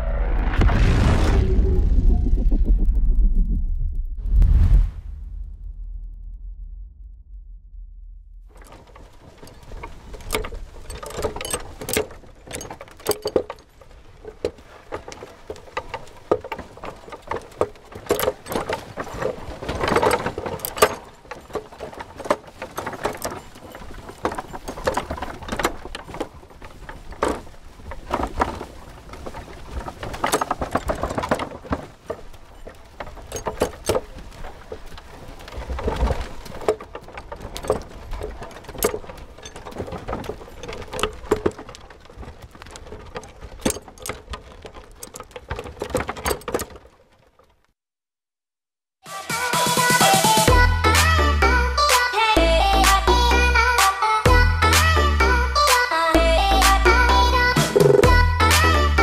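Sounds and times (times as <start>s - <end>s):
hoof steps: 8.5s - 47.7s
cart wheels knocking and rattling: 8.5s - 47.8s, 49.3s - 59.0s.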